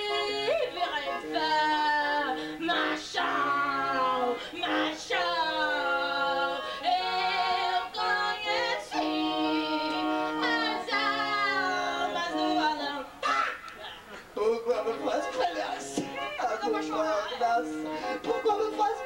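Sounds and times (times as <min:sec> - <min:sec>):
person singing long notes: 0:14.4 - 0:19.0.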